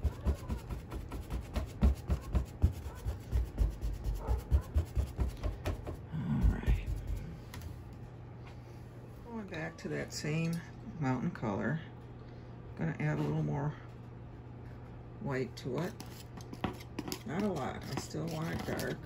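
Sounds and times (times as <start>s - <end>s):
brush tapping on canvas: 0.0s - 7.4s.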